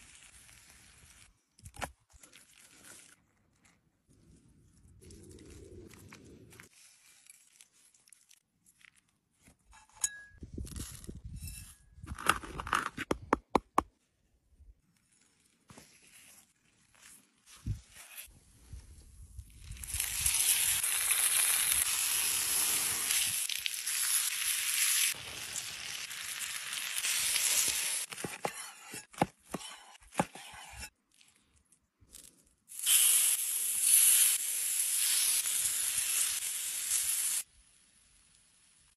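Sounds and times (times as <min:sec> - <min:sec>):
meat sizzling on hot stone: 0:19.8 - 0:28.1, 0:32.7 - 0:38.9.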